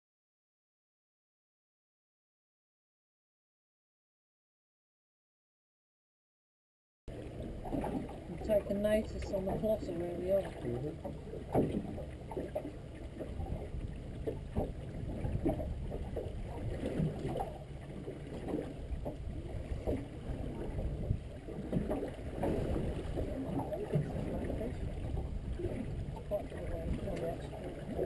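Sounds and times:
water lapping against boat hull: 7.1 - 28.0.

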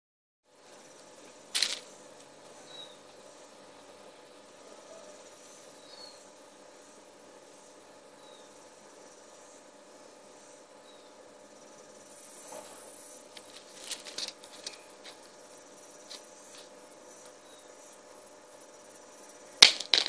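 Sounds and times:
device striking hard ground: 1.6 - 1.9, 19.6 - 20.0.

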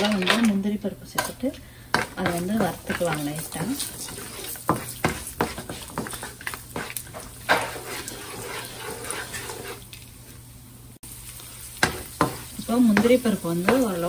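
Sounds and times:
spatula scraping and knocking pan: 1.2 - 9.9, 11.8 - 14.0
nuts sizzling in oil: 1.2 - 14.0.

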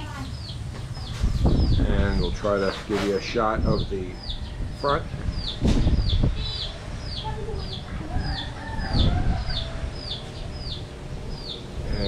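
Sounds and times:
low rumbling bursts: 0.0 - 12.0
rooster crowing: 8.0 - 10.3.

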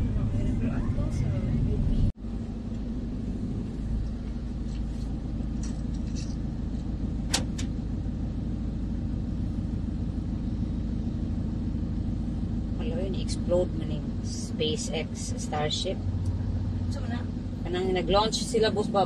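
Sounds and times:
van engine rumble from cabin: 0.0 - 19.0.

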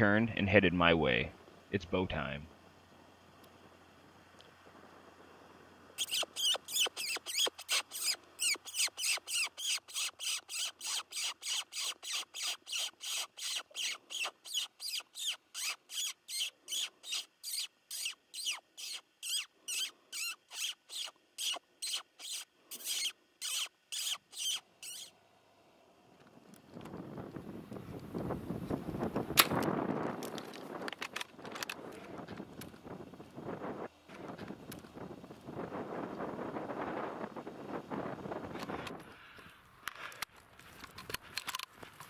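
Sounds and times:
predator call mouse squeaks: 6.0 - 25.1.

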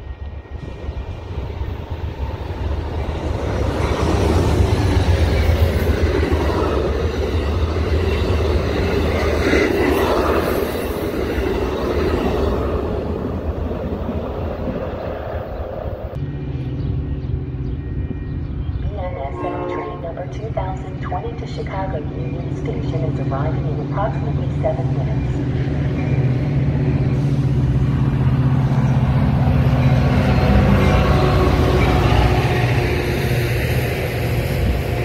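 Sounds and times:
train wheels on rails: 0.0 - 18.5.

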